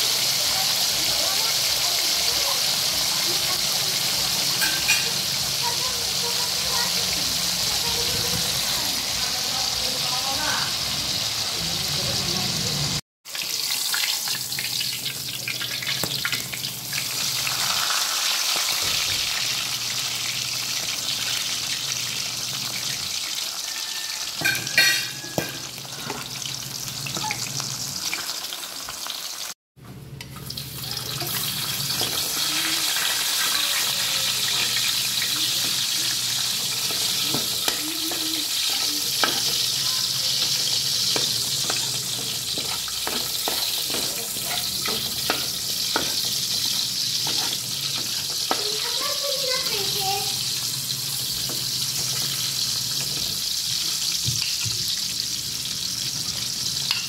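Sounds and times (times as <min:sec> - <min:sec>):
food frying in hot oil: 0:00.0 - 0:29.6, 0:30.2 - 0:57.0
metal spatula scraping a pan: 0:34.5 - 0:48.8.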